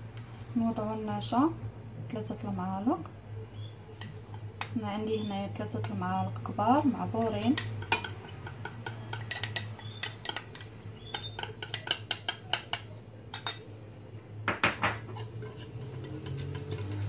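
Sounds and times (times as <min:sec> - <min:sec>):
metal spoon clinking on ceramic bowl: 0:04.0 - 0:04.7, 0:07.5 - 0:13.7, 0:14.5 - 0:17.0
wire whisk stirring in pan: 0:07.5 - 0:13.6, 0:15.0 - 0:17.0.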